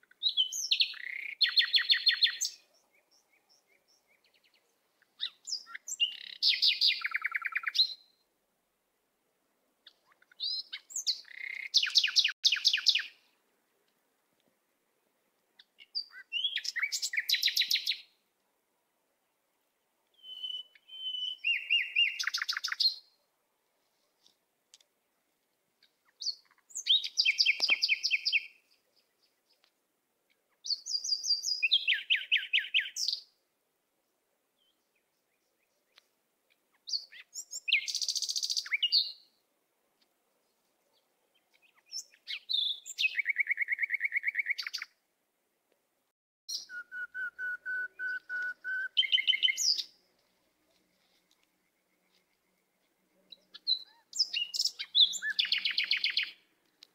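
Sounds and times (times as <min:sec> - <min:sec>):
songbird trilling: 0:05.2 - 0:08.0, 0:10.2 - 0:13.1, 0:20.2 - 0:23.0, 0:46.5 - 0:49.9, 0:53.3 - 0:56.4.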